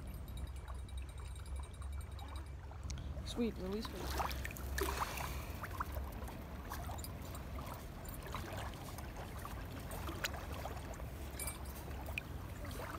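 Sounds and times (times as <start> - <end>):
running river water: 0.0 - 12.9
faint ticks: 2.8 - 3.0.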